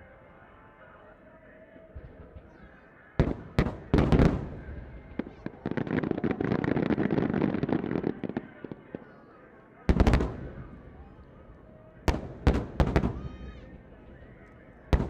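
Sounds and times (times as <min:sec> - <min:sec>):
heavy firework booms: 0:03.2 - 0:08.9, 0:09.9 - 0:11.0, 0:12.0 - 0:13.6
sharp bangs and crackles: 0:03.2 - 0:09.1, 0:09.9 - 0:11.3, 0:12.0 - 0:13.4.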